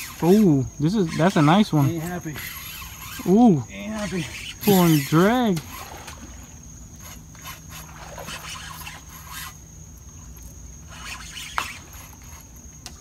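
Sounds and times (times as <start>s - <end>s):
fishing reel scraping and clicking: 0.0s - 6.1s, 7.0s - 9.6s, 10.9s - 12.5s.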